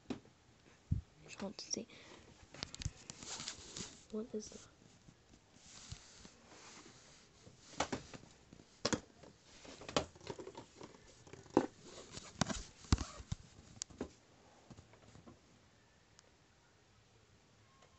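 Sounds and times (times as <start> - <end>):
camera handling noise: 11.4 - 13.4.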